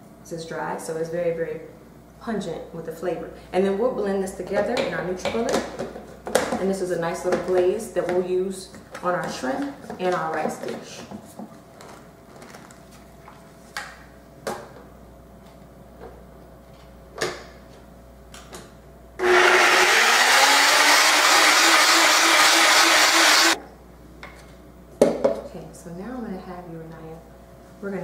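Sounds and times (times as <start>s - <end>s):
blender running: 19.2s - 23.6s.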